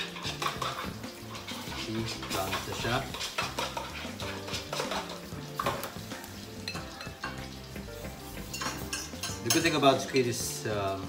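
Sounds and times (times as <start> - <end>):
brush scraping ceramic bowl: 0.0 - 5.1
faint sizzle on grill: 0.0 - 11.0.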